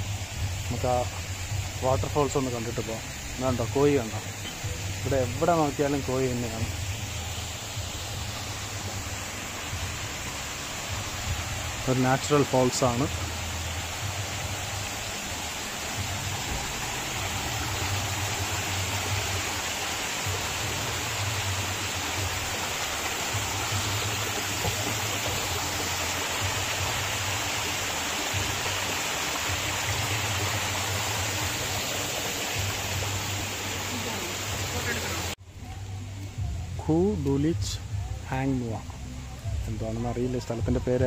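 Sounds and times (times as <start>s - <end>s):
waterfall splashing: 0.0s - 35.4s.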